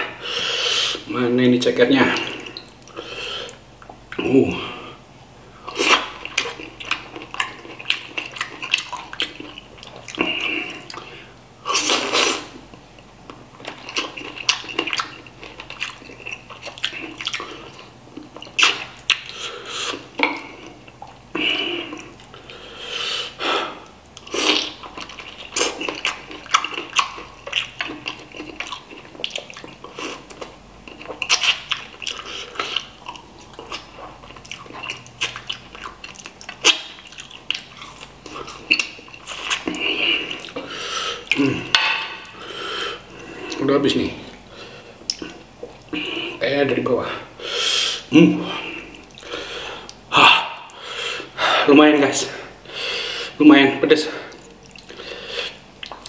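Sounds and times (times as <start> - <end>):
person eating with smacking slurping: 5.6 - 12.6, 13.6 - 46.4, 54.3 - 56.0.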